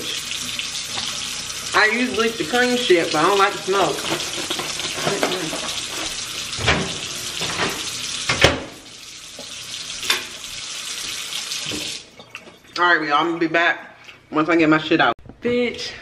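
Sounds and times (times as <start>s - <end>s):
tap water running into sink: 0.0s - 12.7s.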